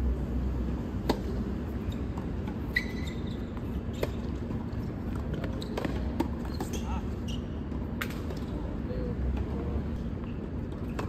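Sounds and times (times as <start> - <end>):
steady low hum: 0.0 - 11.0
brief high squeak: 2.7 - 4.2.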